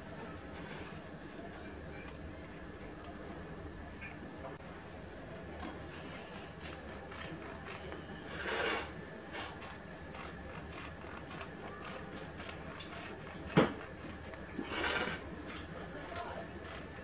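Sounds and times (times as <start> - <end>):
bread knife sawing through bread: 8.1 - 15.3.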